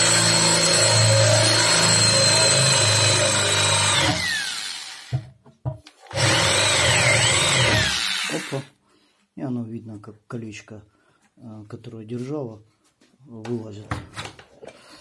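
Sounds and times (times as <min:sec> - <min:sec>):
electric drill drilling metal: 0:00.0 - 0:05.2, 0:06.1 - 0:08.7.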